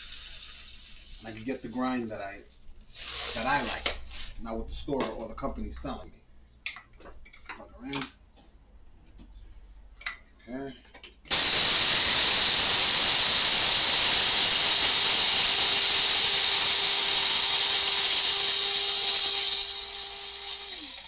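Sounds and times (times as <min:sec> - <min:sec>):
blade coffee grinder grinding: 0:00.0 - 0:01.5, 0:11.3 - 0:21.0.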